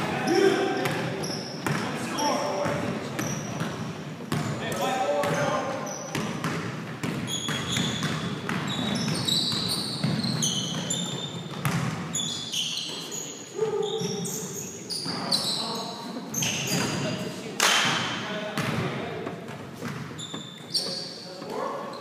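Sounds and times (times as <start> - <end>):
sneakers squeaking on court: 0.2 - 17.2, 18.0 - 22.0
basketball bouncing on hardwood: 6.1 - 10.9, 11.5 - 12.0.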